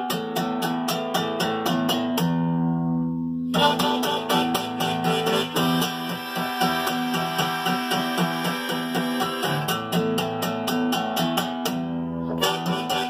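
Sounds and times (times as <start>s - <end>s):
acoustic guitar strumming: 0.0s - 13.0s
harmonica held notes: 3.6s - 9.8s, 12.3s - 13.0s.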